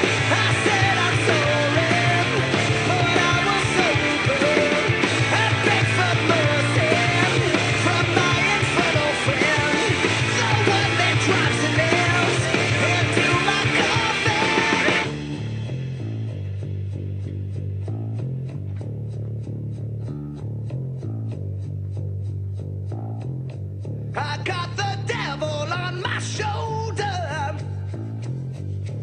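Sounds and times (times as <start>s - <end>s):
rock band playing: 0.0s - 22.0s
guitar and bass: 0.0s - 29.0s.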